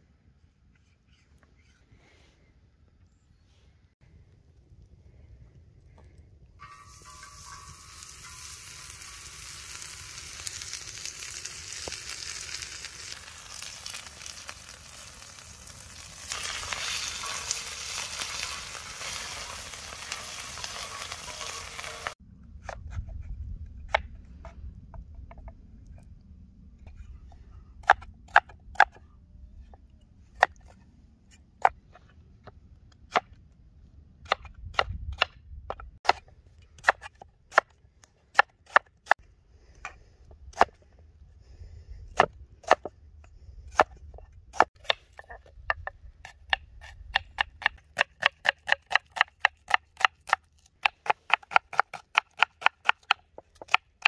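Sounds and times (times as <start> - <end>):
meat sizzling on griddle: 7.0 - 22.2.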